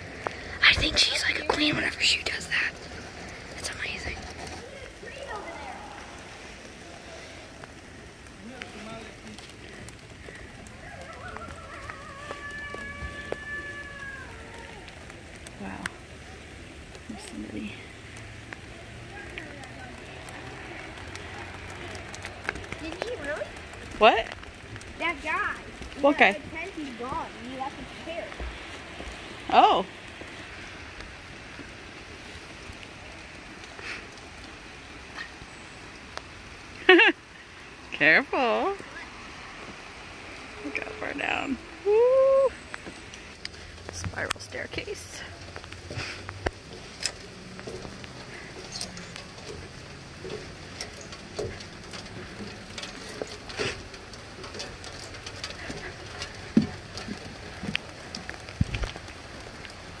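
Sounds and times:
rain on forest canopy: 0.0 - 60.0
footsteps on metal stairs and wood: 45.5 - 59.0.

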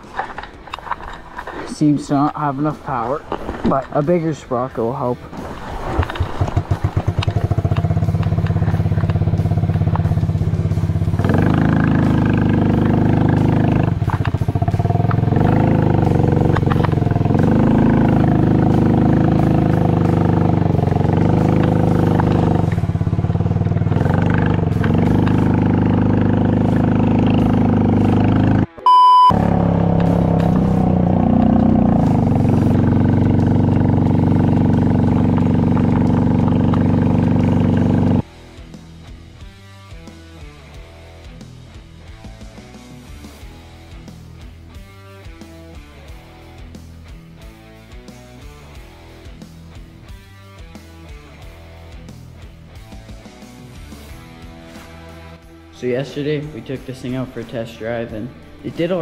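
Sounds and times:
small quad engine revving: 6.3 - 28.7, 29.3 - 38.3
short electronic beep: 28.8 - 29.5.

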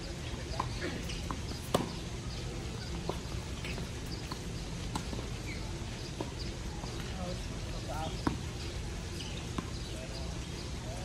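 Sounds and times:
tennis ball struck by rackets: 0.5 - 2.0.

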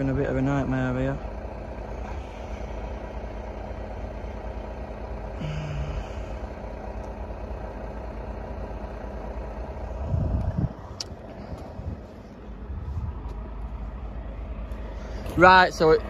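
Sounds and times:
engine idling: 0.0 - 16.0
short low hum: 9.5 - 15.2.

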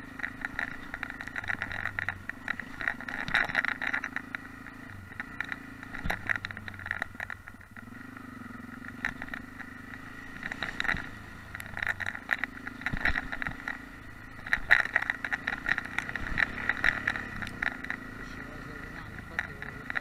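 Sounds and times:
motorcycle engine running: 0.0 - 20.0.

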